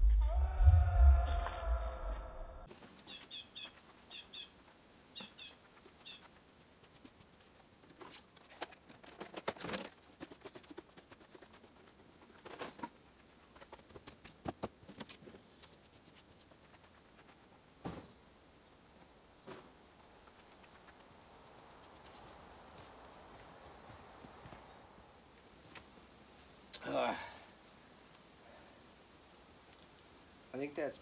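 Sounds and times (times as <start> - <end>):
small bird chirping: 3.0 - 6.7.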